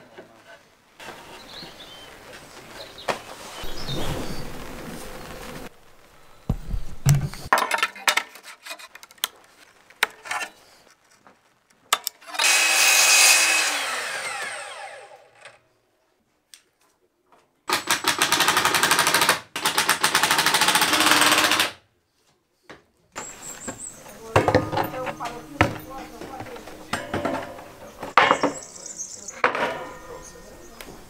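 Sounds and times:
mitre saw cutting a plank: 0:12.2 - 0:15.6.

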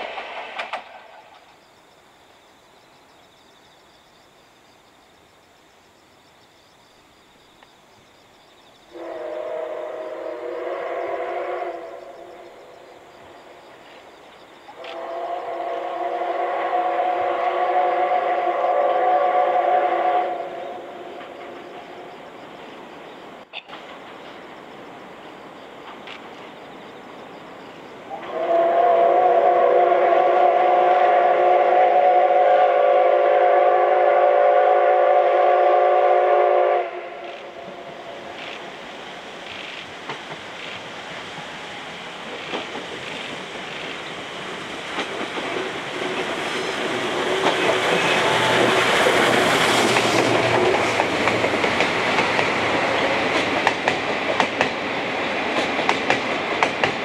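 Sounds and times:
train running noise: 0:00.0 - 0:02.0, 0:08.8 - 0:57.0
steam locomotive whistle: 0:08.9 - 0:12.5, 0:14.8 - 0:21.7, 0:28.1 - 0:38.2, 0:45.9 - 0:51.6.

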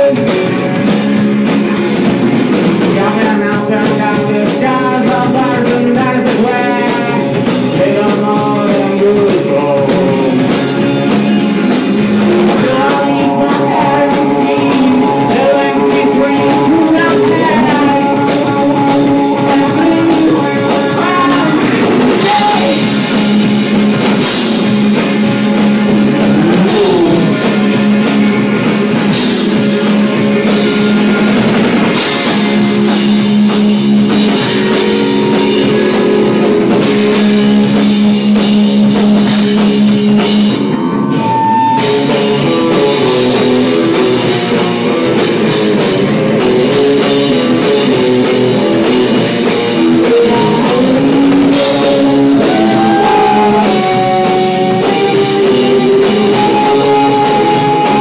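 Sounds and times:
rock band playing live: 0:00.0 - 0:58.0
cymbals: 0:11.3 - 0:29.8, 0:30.6 - 0:40.0.

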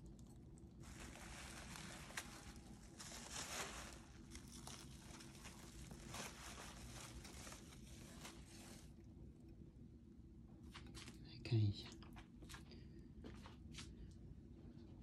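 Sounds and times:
bubble wrap crinkling: 0:00.0 - 0:09.4.

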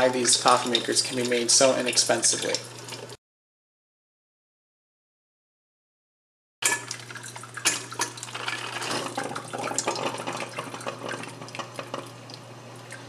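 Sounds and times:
coffee maker gurgling and sputtering: 0:00.0 - 0:03.2, 0:06.8 - 0:13.0.

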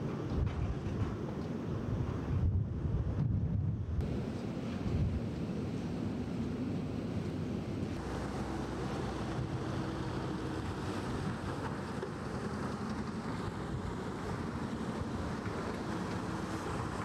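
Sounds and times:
wind on microphone: 0:00.0 - 0:05.8
floodwater flowing and splashing: 0:07.9 - 0:17.0.

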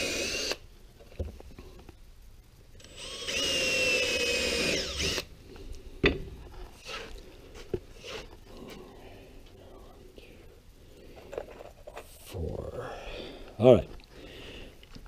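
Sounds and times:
cordless drill drilling into wood: 0:00.0 - 0:00.6, 0:02.8 - 0:05.3.

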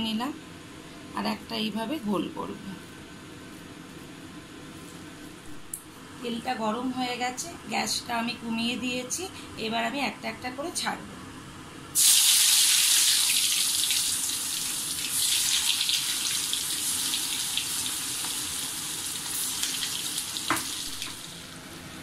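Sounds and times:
cutlets sizzling in hot oil: 0:12.0 - 0:21.5.

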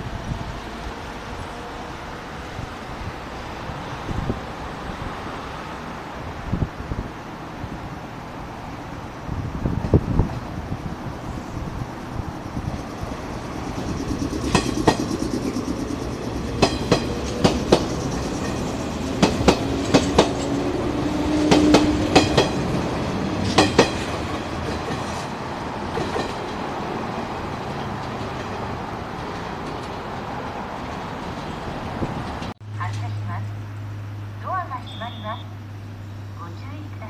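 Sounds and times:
train rumble: 0:00.0 - 0:37.0
train wheels clicking over rail joints: 0:12.3 - 0:32.6.

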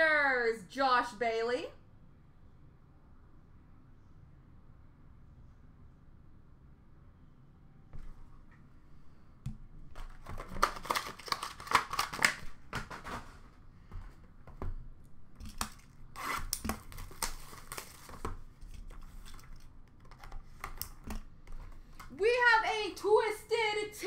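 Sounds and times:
packaging crinkling and tearing: 0:09.9 - 0:13.4, 0:15.4 - 0:20.9.

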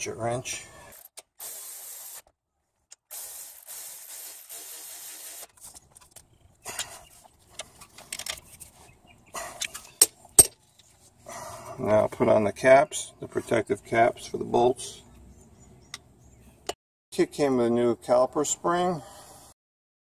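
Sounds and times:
tools and parts clicking: 0:07.6 - 0:08.6, 0:09.6 - 0:10.9.

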